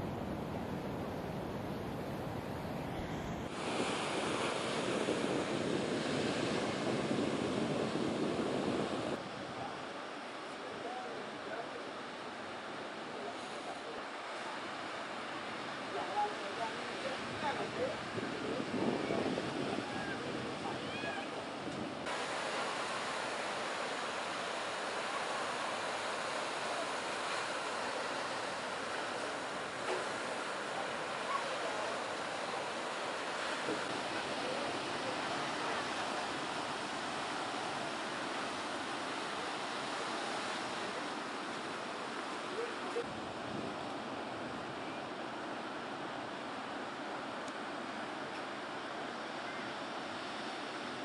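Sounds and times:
wind on microphone: 0.0 - 9.8, 17.2 - 26.4
ocean surf breaking: 2.1 - 51.0.

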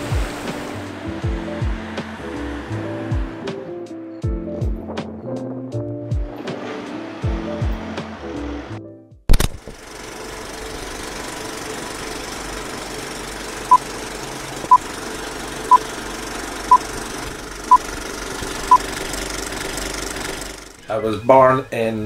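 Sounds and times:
film projector rattling whir: 9.4 - 20.8.

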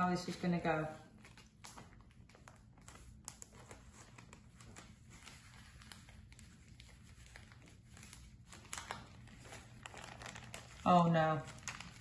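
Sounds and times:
baking paper crinkling: 0.0 - 12.0.

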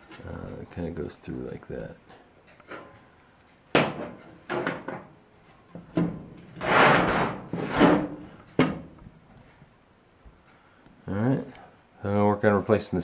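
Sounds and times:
metal parts scraping: 6.5 - 8.2.

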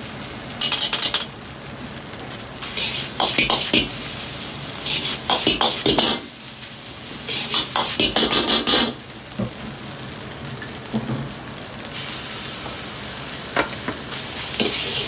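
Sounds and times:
rice sizzling: 0.0 - 15.0
metal ladle scraping a wok: 4.8 - 6.2.

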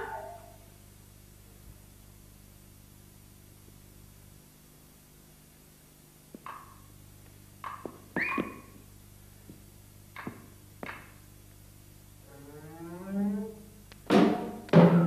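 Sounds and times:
knocks on a stage: 14.0 - 15.0.

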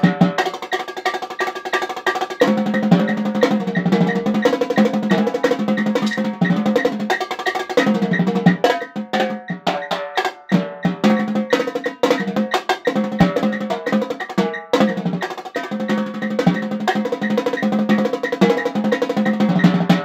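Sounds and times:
drum roll: 0.0 - 20.0
marching tenor drums: 0.0 - 20.0.

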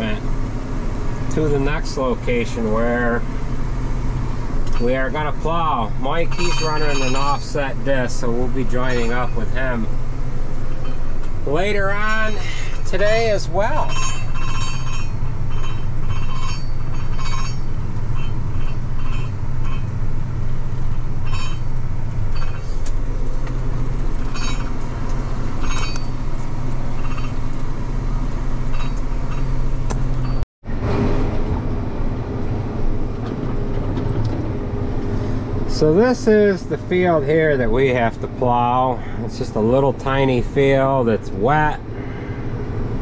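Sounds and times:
tractor diesel engine: 0.0 - 43.0
light rattling: 0.4 - 30.4.

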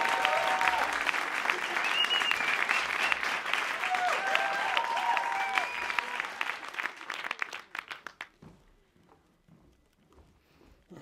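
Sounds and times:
whoops: 0.0 - 3.2, 3.8 - 6.5
audience applause: 0.0 - 8.4.

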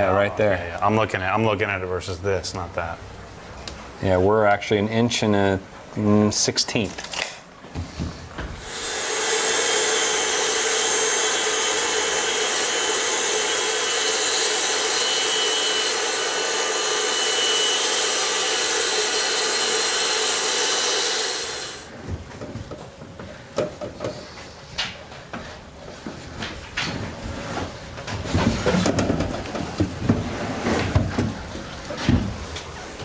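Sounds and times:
power saw cutting wood: 8.6 - 21.9.

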